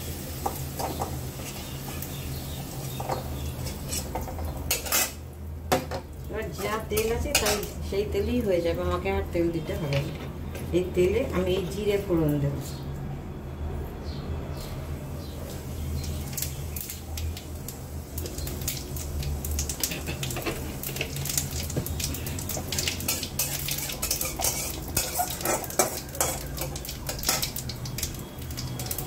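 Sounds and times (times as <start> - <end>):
seeds sizzling in hot oil: 0.0 - 8.4, 15.3 - 29.0
metal spatula scraping a pan: 0.9 - 2.1, 3.1 - 5.2, 6.6 - 7.8, 19.8 - 21.4, 22.2 - 28.2.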